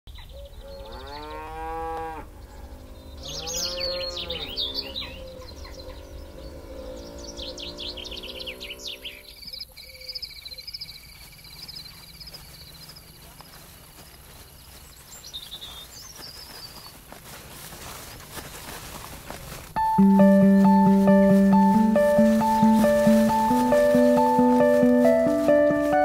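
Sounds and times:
birds chirping: 0.1 - 26.0
cattle mooing: 0.8 - 9.3
high-pitched trill: 19.8 - 26.0.

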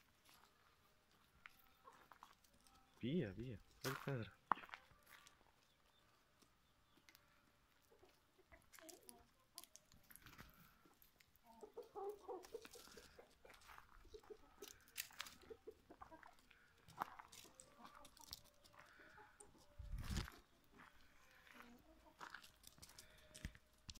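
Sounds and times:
chickens clucking: 0.2 - 23.9
feet scuffing on gravel: 3.8 - 5.4, 16.9 - 19.0, 19.8 - 23.6.

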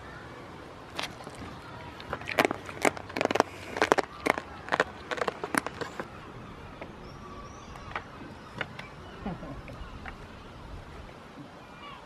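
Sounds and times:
goat mouthing and bumping camera: 0.9 - 6.1.

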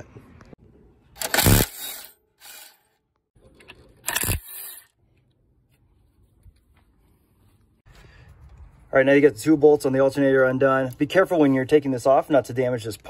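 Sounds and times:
impact wrench bursts: 1.2 - 2.8.

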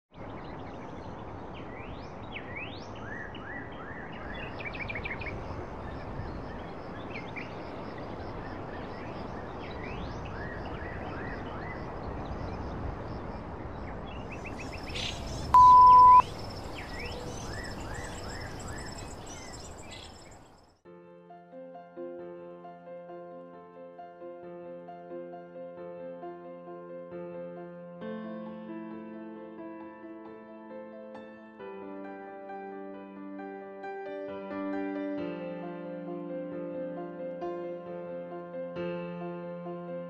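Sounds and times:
birds chirping: 0.2 - 20.8
outdoor ambient hiss: 0.2 - 20.8
loud high beep: 15.5 - 16.2.

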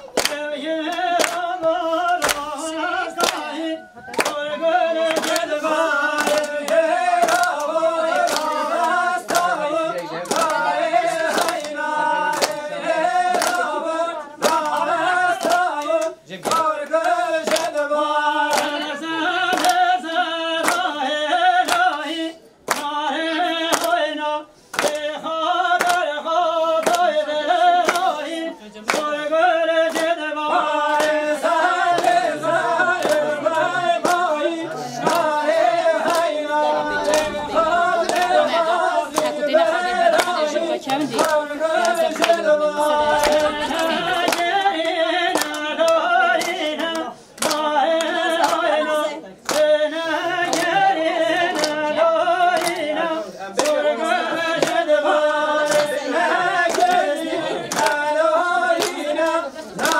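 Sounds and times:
group singing: 0.0 - 59.9
rhythmic handclaps: 0.0 - 59.9.

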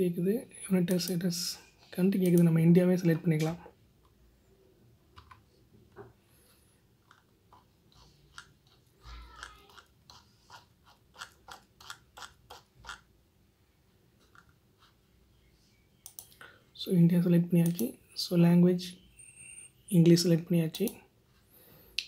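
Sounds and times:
mouse scroll wheel ticking: 7.0 - 13.1.

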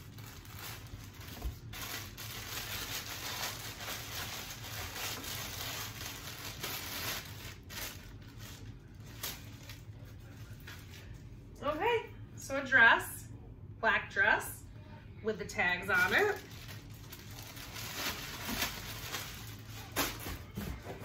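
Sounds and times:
plastic bag crinkling: 0.0 - 11.2, 16.0 - 20.4.

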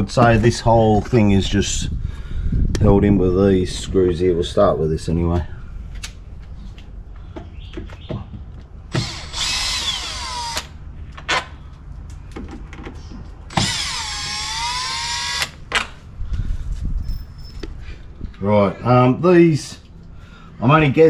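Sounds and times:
cordless drill whine: 8.9 - 10.7, 13.5 - 15.6.

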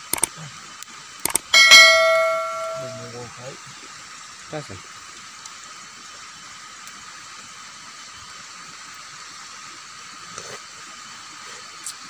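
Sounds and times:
faint high tone: 1.6 - 3.2
soup boiling and bubbling: 3.8 - 12.0.

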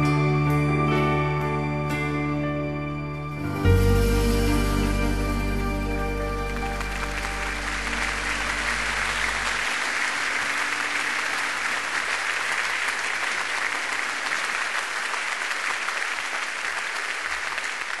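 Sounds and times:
low musical notes: 0.0 - 11.5
audience applauding: 4.9 - 18.0.

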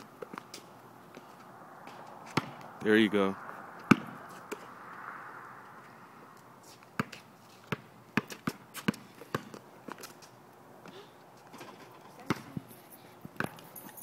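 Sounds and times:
basketball bouncing on court: 2.3 - 2.6, 7.0 - 9.6, 12.3 - 12.6.

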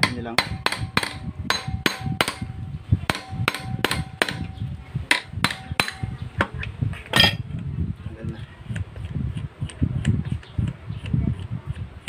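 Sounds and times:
hammer tapping on metal: 0.0 - 6.5.

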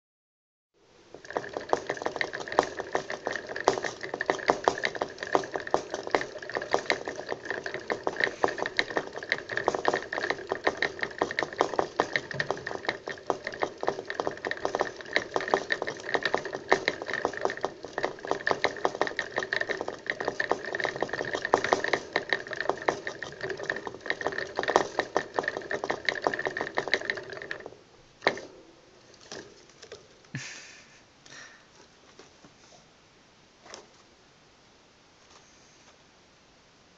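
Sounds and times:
hamster wheel whirring and clicking: 1.0 - 30.4.

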